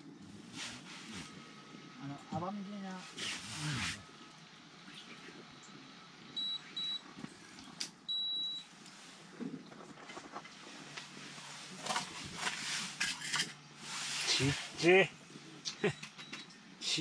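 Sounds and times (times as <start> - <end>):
electronic device beeping: 6.4 - 7.0, 8.1 - 8.7.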